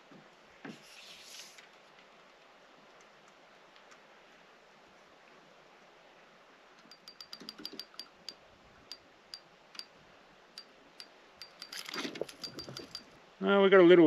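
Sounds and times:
faint sharp clicks: 0:01.6 - 0:04.0.

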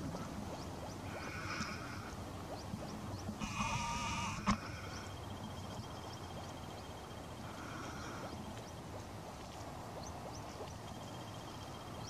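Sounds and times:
grouse call: 0:03.4 - 0:04.8.

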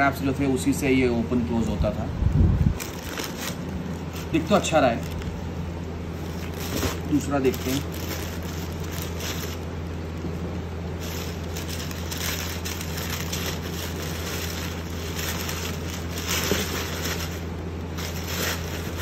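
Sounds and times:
steady low hum: 0:00.0 - 0:19.0
tissue paper rustling: 0:02.8 - 0:05.4, 0:06.2 - 0:10.1, 0:10.9 - 0:19.0.

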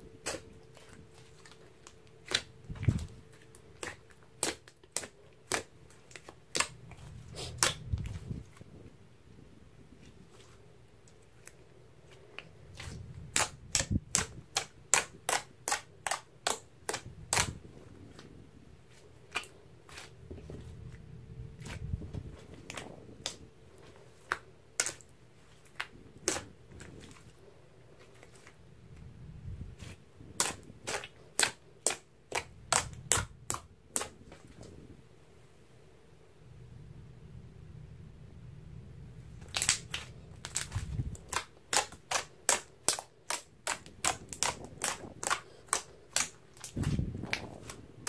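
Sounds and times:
slime squishing softly: 0:00.0 - 0:35.6, 0:39.0 - 0:48.0.

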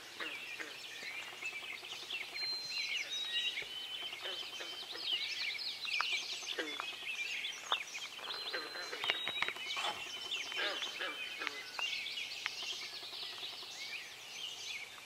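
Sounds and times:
long steady bird whistles: 0:00.0 - 0:15.0
songbirds chirping and trilling: 0:00.0 - 0:15.0.

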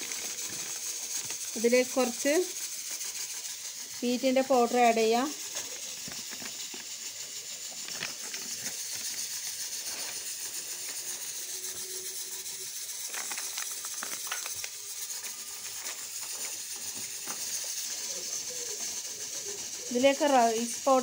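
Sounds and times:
plastic packet crinkling: 0:00.0 - 0:01.6, 0:05.5 - 0:07.0, 0:07.6 - 0:09.2, 0:12.6 - 0:17.6
steady hiss: 0:00.0 - 0:21.0.

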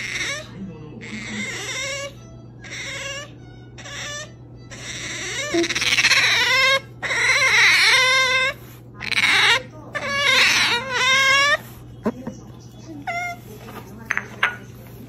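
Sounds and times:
otter high-pitched wavering calls: 0:01.2 - 0:11.6.

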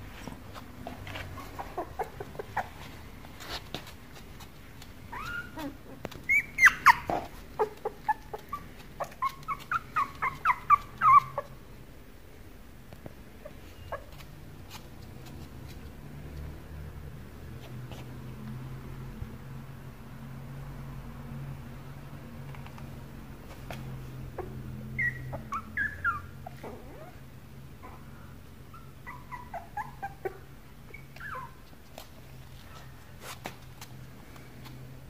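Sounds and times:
puppy whimpering: 0:01.2 - 0:03.7, 0:04.8 - 0:11.6, 0:13.4 - 0:14.3, 0:24.2 - 0:27.2, 0:28.7 - 0:31.7.

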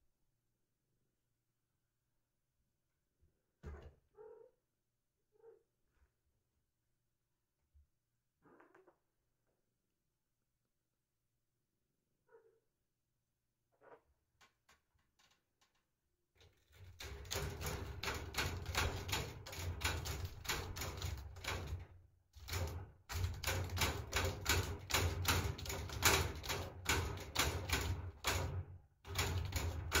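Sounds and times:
cat scratching cardboard: 0:29.1 - 0:30.0.

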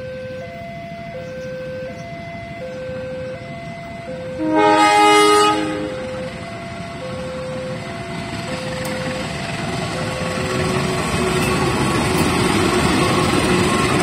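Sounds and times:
level crossing alarm tones: 0:00.0 - 0:14.0
locomotive horn: 0:04.2 - 0:06.5.

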